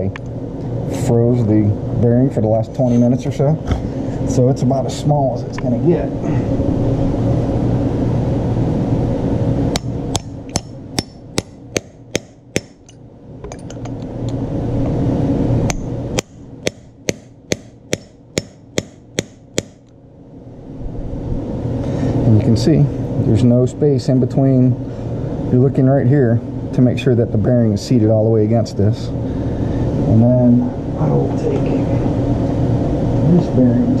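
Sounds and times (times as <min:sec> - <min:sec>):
steady background noise: 0:00.0 - 0:34.0
hammer tapping on metal socket: 0:09.8 - 0:14.0, 0:15.7 - 0:19.9.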